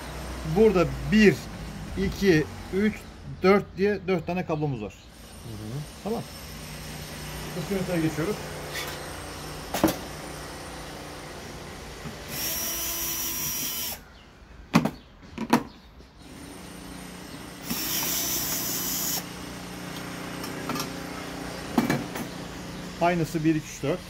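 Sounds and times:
power drill whining: 0:05.1 - 0:14.0, 0:16.2 - 0:21.2.

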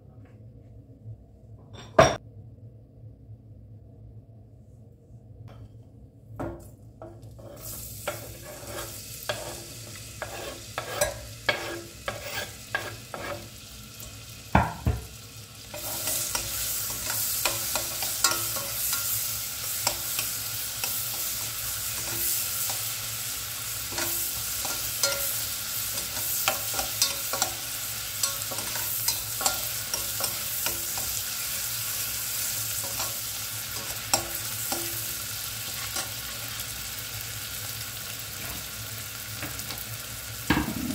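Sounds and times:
onions sizzling in butter: 0:07.2 - 0:40.9
onion scraped into pot: 0:07.3 - 0:13.5.

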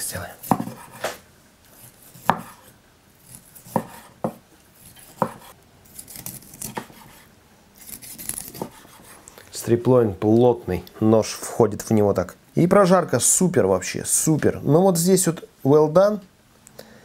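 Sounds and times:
knife cutting steak: 0:01.8 - 0:09.2.

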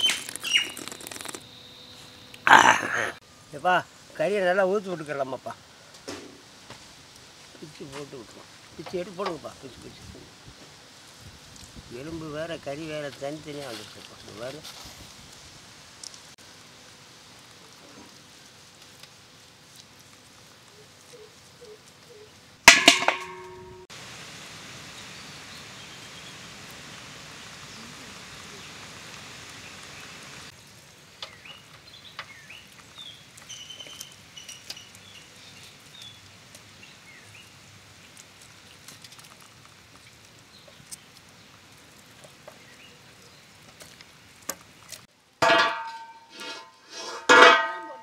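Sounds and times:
loud metallic clang: 0:22.7 - 0:23.8, 0:45.4 - 0:46.6, 0:47.2 - 0:48.0
iron pan clanking on stones: 0:22.7 - 0:23.9, 0:45.4 - 0:48.0.

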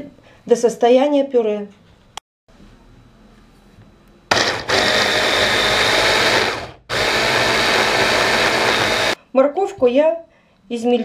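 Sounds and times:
electric chopper running: 0:04.3 - 0:09.2.

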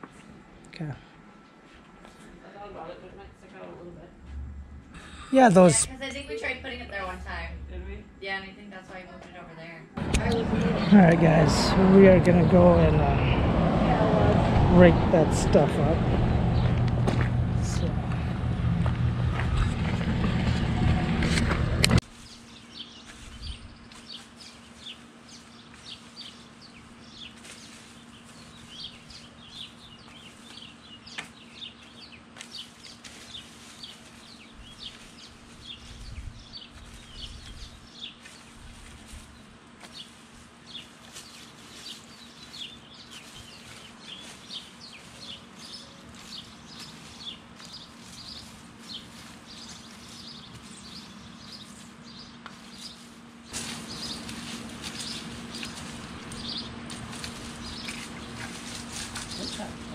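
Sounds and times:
low steady hum: 0:00.3 - 0:59.9
small birds chirping: 0:10.0 - 0:14.0, 0:14.8 - 0:21.0, 0:22.2 - 0:59.9
loud rush of noise: 0:10.0 - 0:22.0
metal rake scraping wood chips: 0:53.5 - 0:59.6.

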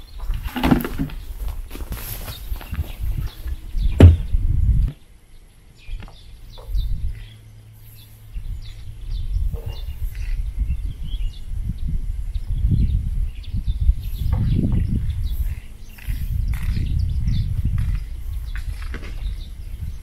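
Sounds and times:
wind rumbling on microphone: 0:00.0 - 0:05.1, 0:05.8 - 0:07.5, 0:08.2 - 0:20.0
small birds chirping: 0:00.0 - 0:20.0
sharp knock: 0:04.0 - 0:04.3.

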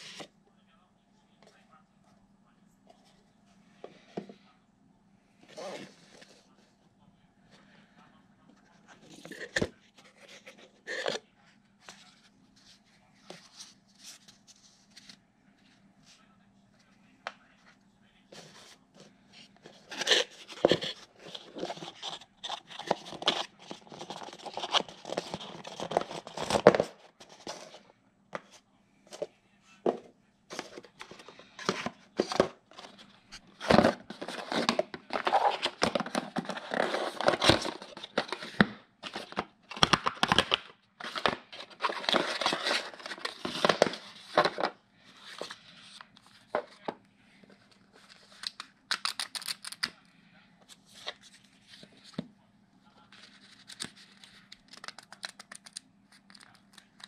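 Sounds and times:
cardboard rustling and scraping: 0:18.3 - 0:29.3, 0:29.9 - 0:48.4.

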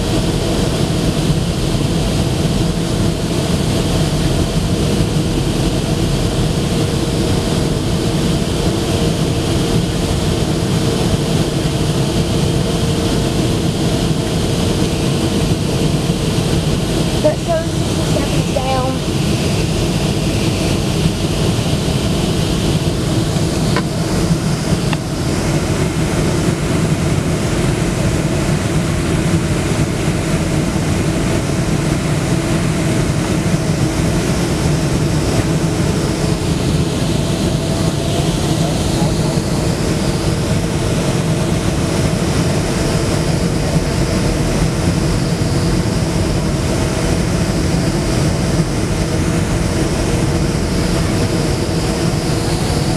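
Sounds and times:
jet engines and rushing airflow: 0:00.0 - 0:52.9
steady engine tones: 0:00.0 - 0:52.9
low cabin hum: 0:09.5 - 0:43.0.

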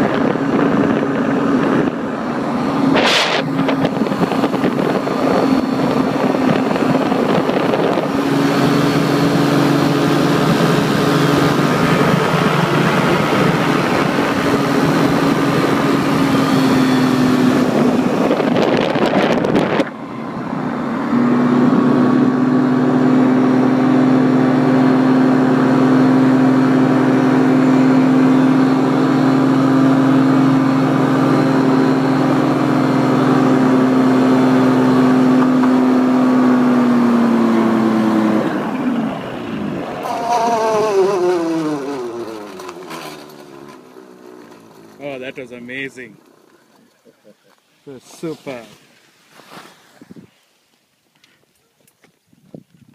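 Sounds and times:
wind on microphone: 0:00.0 - 0:22.8, 0:49.9 - 0:50.4, 0:52.2 - 0:52.9
paramotor engine and propeller: 0:00.0 - 0:52.9.

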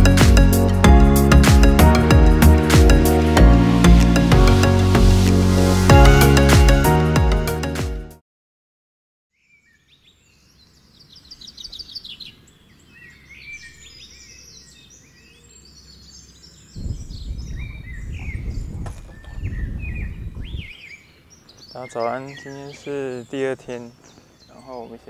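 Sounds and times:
birds chirping and trilling: 0:09.3 - 0:25.0.

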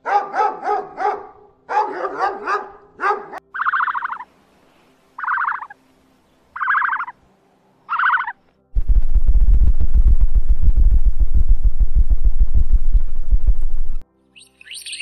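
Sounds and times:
buzzy rasping animal call: 0:03.6 - 0:04.3, 0:05.2 - 0:05.8, 0:06.6 - 0:07.1, 0:07.9 - 0:08.4.

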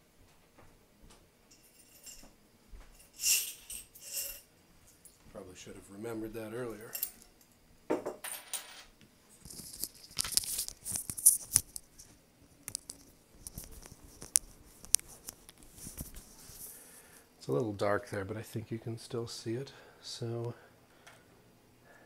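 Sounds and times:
coins clinking on wooden table: 0:01.5 - 0:02.3, 0:03.0 - 0:04.4, 0:06.8 - 0:07.3, 0:07.9 - 0:08.9
coins rattling in glass jar: 0:01.5 - 0:02.3, 0:03.0 - 0:04.5.

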